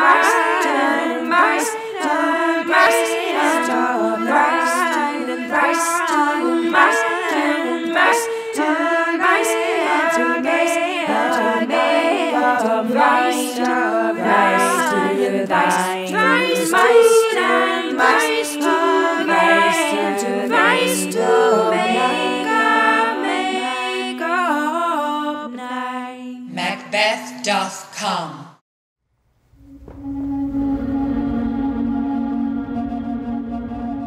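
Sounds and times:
women singing a cappella harmony: 0.0s - 26.5s.

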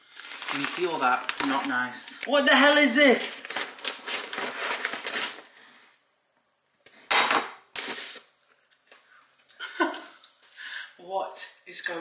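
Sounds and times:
paper bag rustling: 0.0s - 5.7s, 7.8s - 8.3s.

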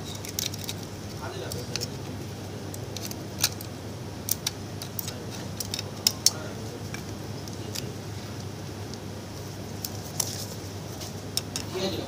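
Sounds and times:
plastic parts clicking together: 0.0s - 2.0s, 2.7s - 7.9s, 11.4s - 11.7s
steady low hum: 0.0s - 12.0s.

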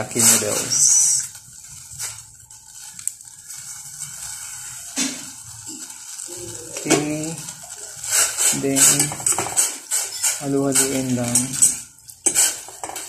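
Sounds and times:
faint steady hiss: 0.0s - 13.0s
noodles tapping against pot: 6.8s - 13.0s.

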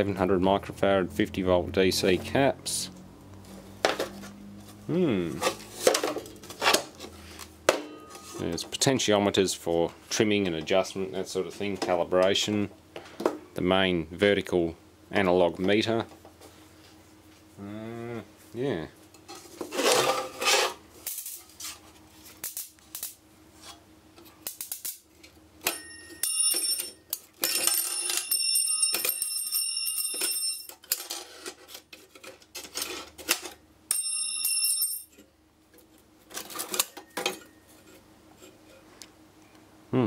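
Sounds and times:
metallic ringing and scraping: 7.8s - 8.5s.

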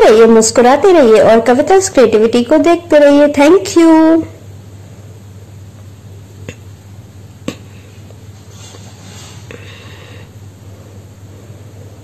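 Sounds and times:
low room tone hum: 0.0s - 12.0s.

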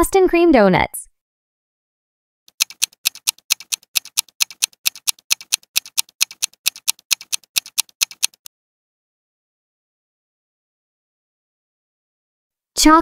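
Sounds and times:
clock ticking: 2.5s - 8.5s.

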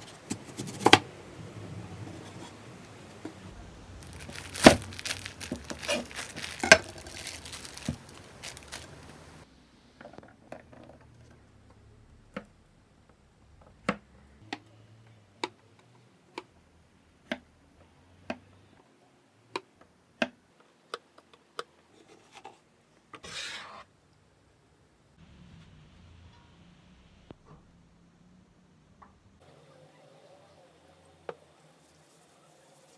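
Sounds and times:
rustling scrape: 1.9s - 9.4s, 23.2s - 23.9s
plastic packaging crinkling: 3.5s - 9.4s.

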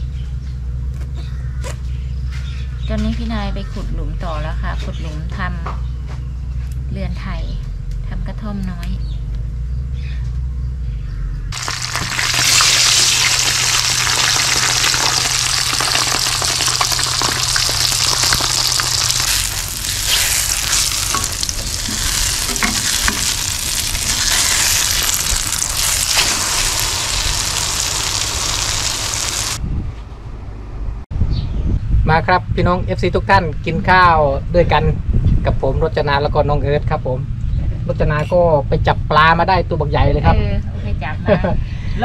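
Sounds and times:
omelette sizzling in hot oil: 11.6s - 29.6s
spatula scraping a pan: 16.0s - 25.2s.

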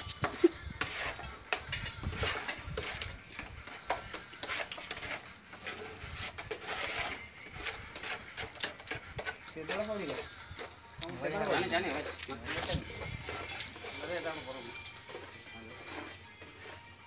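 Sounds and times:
metal tools scraping concrete: 0.0s - 17.0s.

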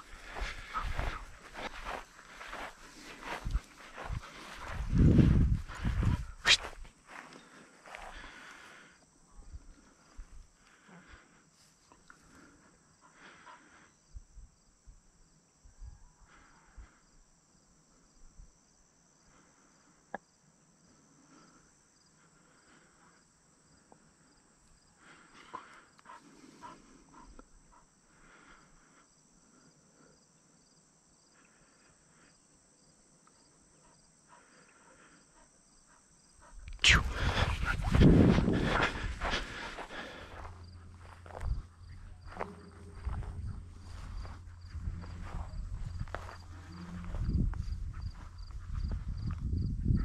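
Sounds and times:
footsteps through grass: 0.0s - 8.4s, 36.9s - 49.2s
insect chirring: 26.8s - 49.9s.

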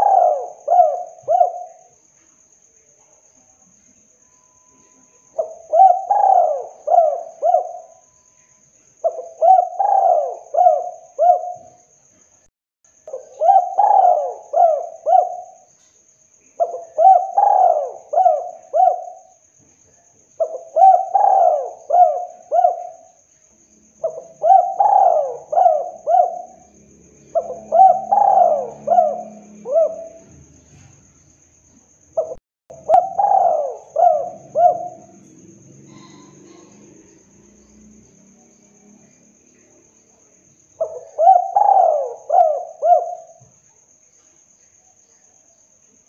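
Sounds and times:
dove cooing: 0.0s - 1.9s, 5.4s - 8.1s, 9.0s - 11.8s, 13.1s - 15.7s, 16.6s - 19.3s, 20.4s - 23.1s, 24.0s - 31.0s, 32.2s - 37.6s, 40.8s - 43.4s.

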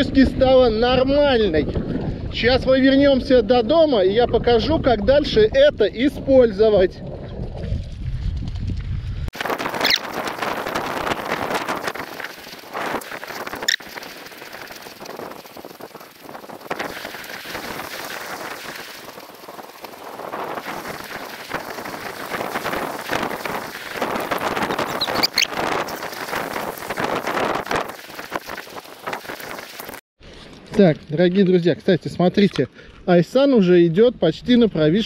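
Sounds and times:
wind on microphone: 0.0s - 30.0s
outdoor rustling: 7.0s - 33.7s.

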